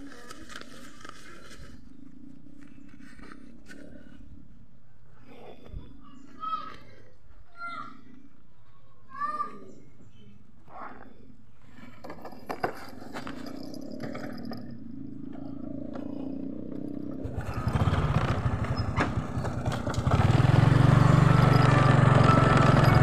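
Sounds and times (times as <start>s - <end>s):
scooter engine idling and revving: 13.6s - 23.0s.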